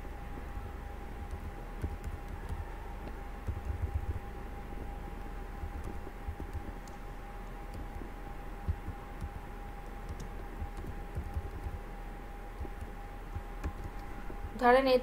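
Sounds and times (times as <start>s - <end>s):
keyboard typing: 1.2s - 2.6s, 3.4s - 4.2s, 5.6s - 7.0s, 7.7s - 11.9s, 12.6s - 14.6s.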